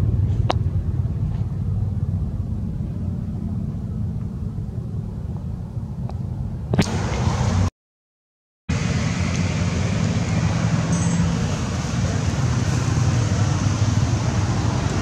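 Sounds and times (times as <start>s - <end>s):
steady low rumble: 0.0s - 7.7s.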